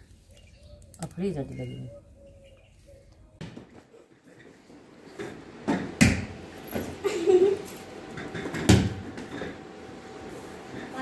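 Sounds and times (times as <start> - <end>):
ball bouncing on tiled floor: 5.6 - 6.9, 8.2 - 9.4.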